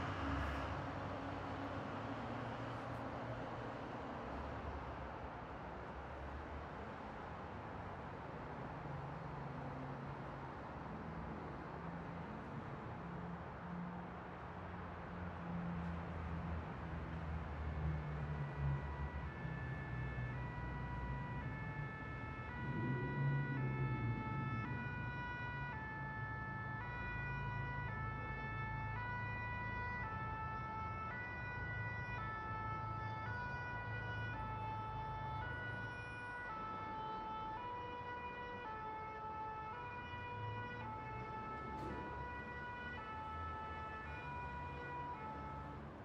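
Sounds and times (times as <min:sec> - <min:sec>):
low rumble of traffic: 0:00.0 - 0:46.0
two-tone emergency siren: 0:17.3 - 0:46.0.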